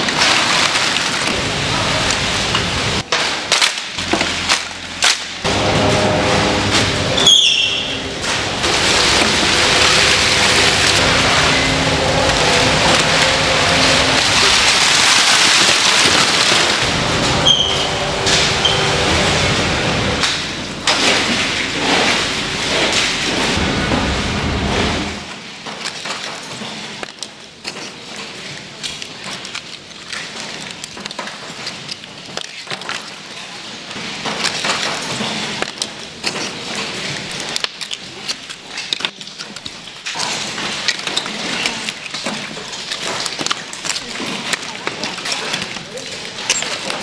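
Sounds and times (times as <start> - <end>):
knocks and clatter: 0.0 - 27.2.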